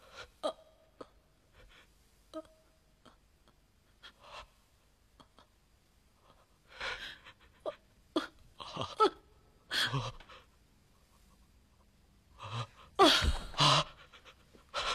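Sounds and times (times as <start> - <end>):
person sobbing: 7.2 - 10.4, 13.0 - 14.9.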